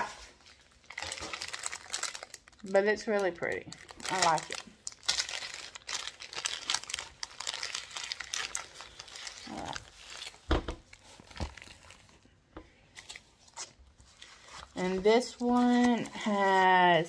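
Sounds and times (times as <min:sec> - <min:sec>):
plastic packaging crinkling: 0:00.0 - 0:12.3, 0:12.9 - 0:17.0.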